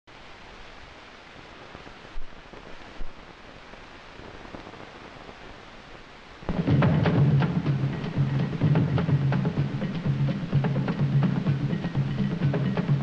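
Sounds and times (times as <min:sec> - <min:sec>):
film soundtrack hiss and crackle: 0:00.1 - 0:13.0
low thumps: 0:06.5 - 0:13.0.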